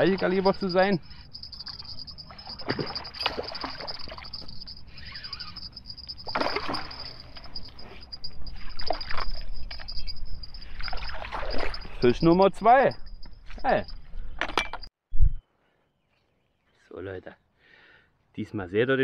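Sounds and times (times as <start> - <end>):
fish thrashing in water: 2.4 - 4.5, 6.2 - 7.6, 10.8 - 11.9.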